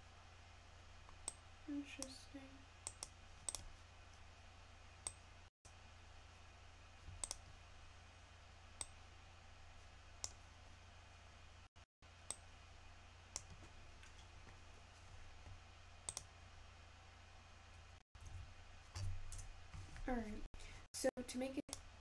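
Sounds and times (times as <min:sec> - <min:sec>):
low steady hum: 0:00.0 - 0:22.0
computer mouse clicks: 0:02.8 - 0:03.7, 0:07.2 - 0:07.4, 0:10.2 - 0:10.4, 0:13.3 - 0:14.3, 0:16.0 - 0:16.3.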